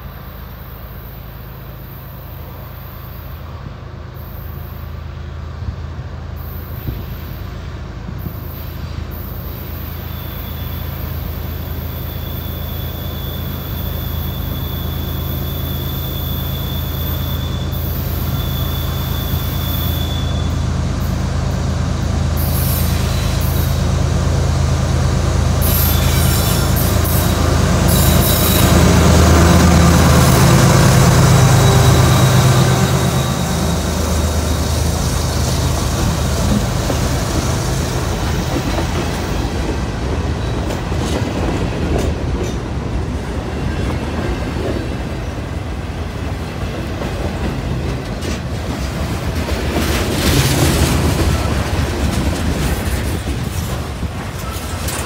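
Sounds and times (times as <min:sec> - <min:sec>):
diesel locomotive drone: 0:00.0 - 0:55.0
high wheel squeal: 0:08.2 - 0:20.8, 0:25.6 - 0:39.5
freight cars rolling: 0:25.9 - 0:55.0.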